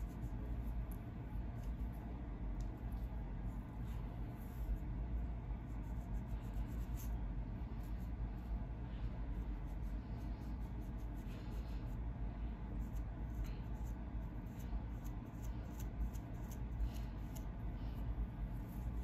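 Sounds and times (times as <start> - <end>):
comb scratching across scalp: 0.0 - 8.6, 9.3 - 12.0, 12.6 - 19.0
steady low hum: 0.0 - 19.0.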